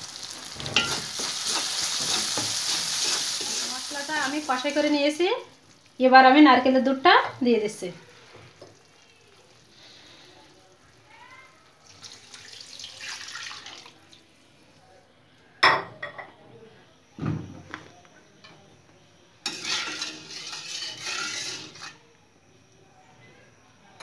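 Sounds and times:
liquid pouring into metal pan: 11.8 - 14.2.

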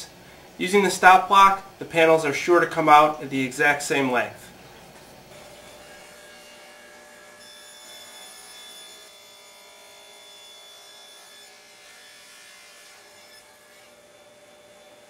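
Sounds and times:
table saw whining: 5.3 - 15.0.

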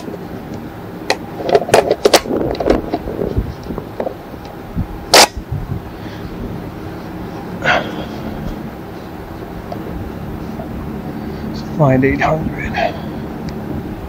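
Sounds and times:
loud gunshot: 5.1 - 5.4.

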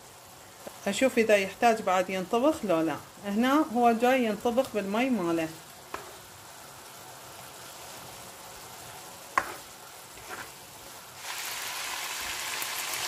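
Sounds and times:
meat sizzling in a pan: 0.0 - 13.0
spatula knocking on pan: 9.4 - 9.6.

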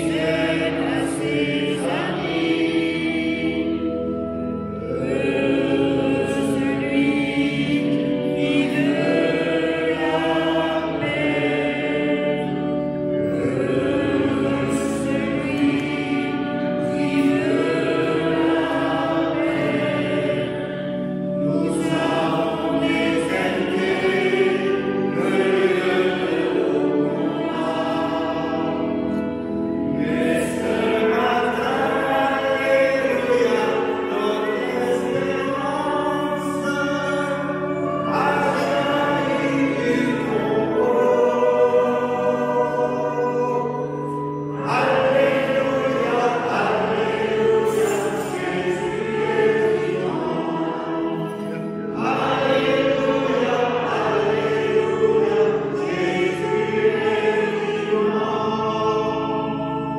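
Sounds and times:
choir singing a hymn: 0.0 - 59.9.

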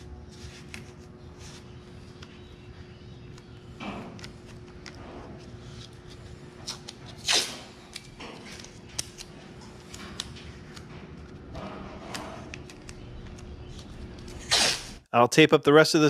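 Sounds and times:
masking tape ripping: 6.7 - 8.1, 14.3 - 15.0.

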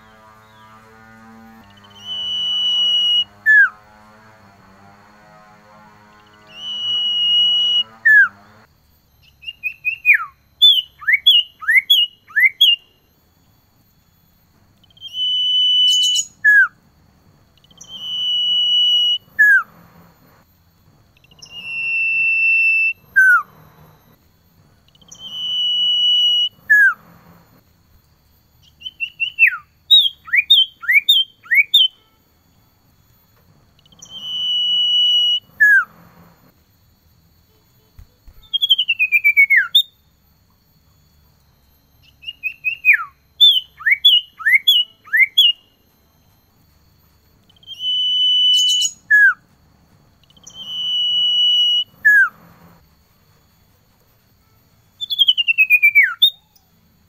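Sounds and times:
bird whistling calls: 1.6 - 3.8, 6.2 - 8.3, 9.2 - 12.9, 14.8 - 16.8, 17.6 - 19.7, 21.2 - 23.6, 24.9 - 27.0, 28.6 - 32.0, 33.8 - 36.0, 38.3 - 40.0, 42.0 - 45.7, 47.5 - 49.4, 50.2 - 52.4, 55.0 - 56.7.

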